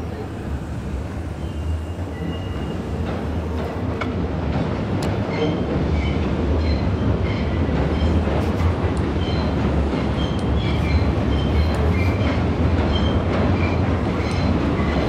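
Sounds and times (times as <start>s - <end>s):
train rumbling over bridge: 0.0s - 15.0s
high wheel squeals: 1.0s - 3.5s, 9.1s - 12.3s.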